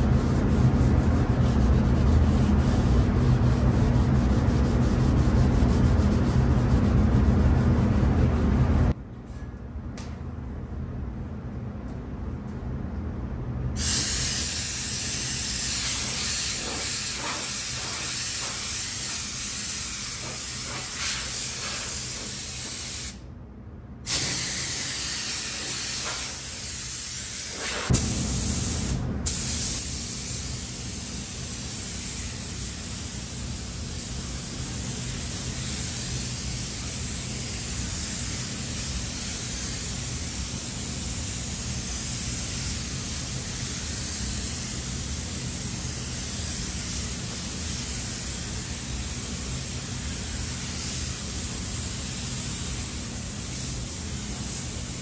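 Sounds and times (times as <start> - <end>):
spray gun hissing: 13.8 - 23.2, 24.1 - 55.0.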